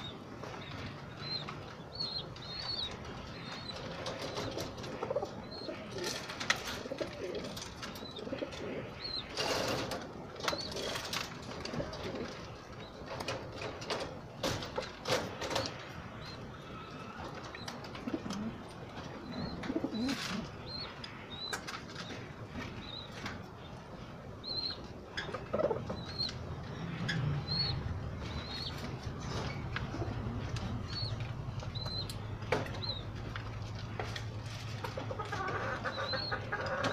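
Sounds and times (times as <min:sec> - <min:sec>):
pigeons cooing: 0:03.7 - 0:14.0, 0:16.4 - 0:20.8, 0:25.2 - 0:31.2.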